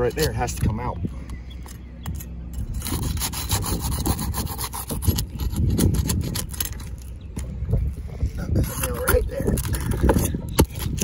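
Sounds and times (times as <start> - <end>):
metal bar scraping under shingles: 2.0 - 7.4.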